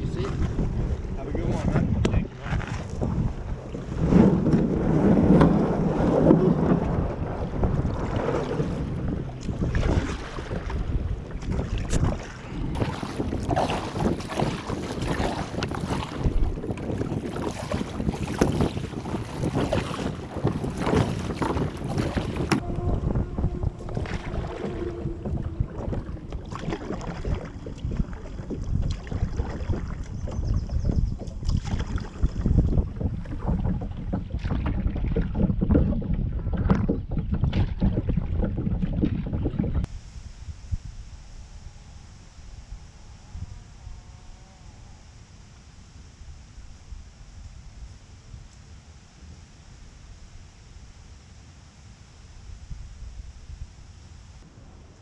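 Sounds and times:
wind rumbling on microphone: 0.0 - 55.0
paddle splashing in water: 2.4 - 39.6.

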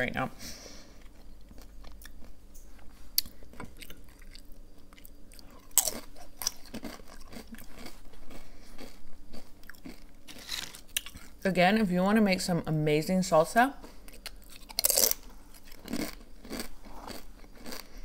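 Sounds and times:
chewing crunchy chip: 3.2 - 11.4, 13.8 - 18.0.

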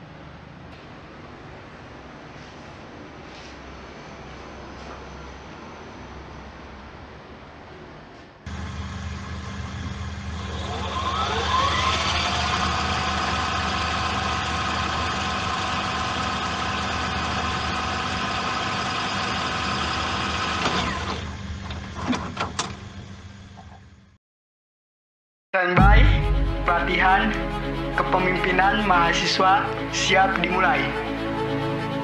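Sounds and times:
low motor hum: 8.5 - 22.1
tape rewind whirring: 8.5 - 23.1.

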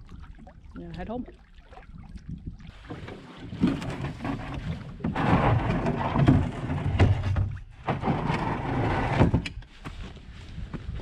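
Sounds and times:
canoe hull scraping over rocks: 2.7 - 9.4.

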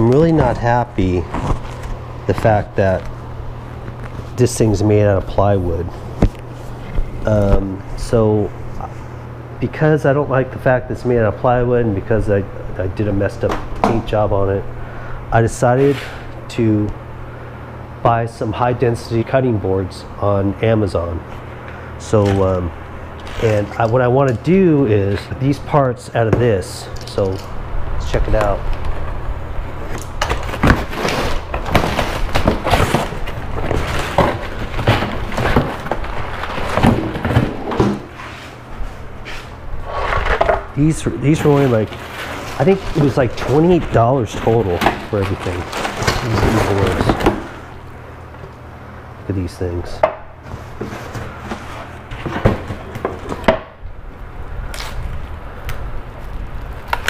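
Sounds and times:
cardboard scraping and rustling: 0.0 - 3.0, 23.2 - 25.3, 30.2 - 47.8, 50.4 - 53.5.

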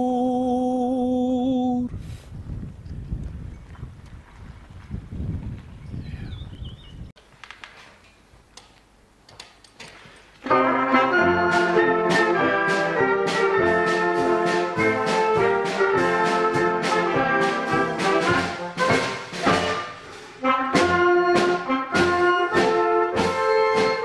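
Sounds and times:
wind band playing chords: 10.4 - 24.0
percussion strokes: 10.5 - 24.0.

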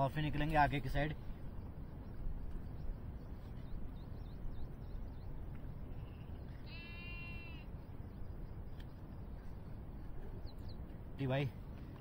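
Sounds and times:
low background noise: 0.0 - 12.0
goat bleating: 6.7 - 7.6.

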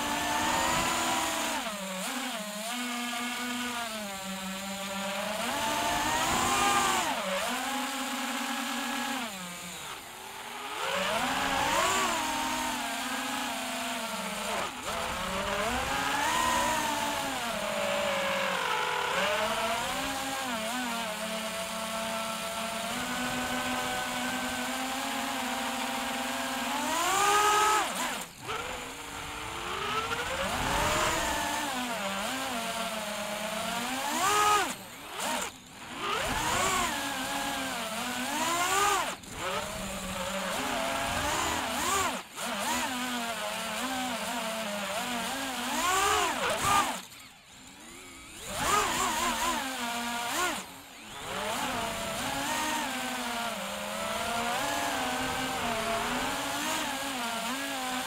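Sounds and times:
quadcopter motors whining: 0.0 - 58.0.

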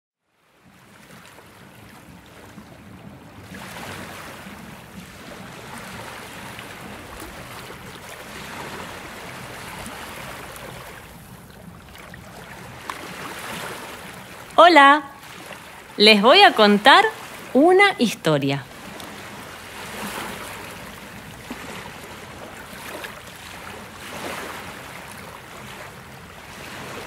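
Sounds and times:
water rushing: 0.6 - 27.0.

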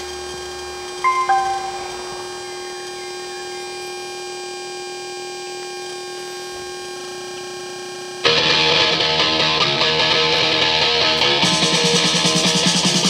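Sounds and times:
electronic hum from speakers: 0.0 - 13.0
heavy metal music with electric guitar: 8.3 - 13.0.

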